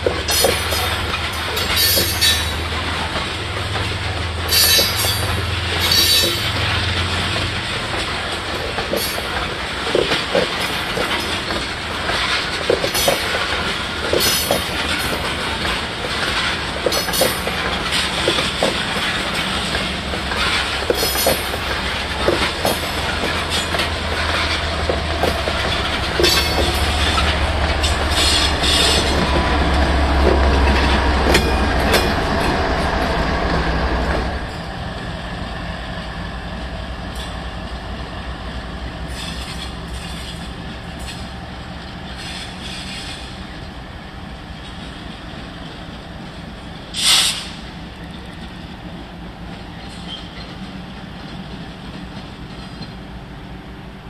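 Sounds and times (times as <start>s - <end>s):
train wheels clickety-clack: 0.0s - 35.3s, 36.0s - 43.8s, 44.4s - 53.4s
diesel locomotive engine rumble: 0.0s - 54.0s
wheel squeal: 25.8s - 29.4s, 49.7s - 50.6s.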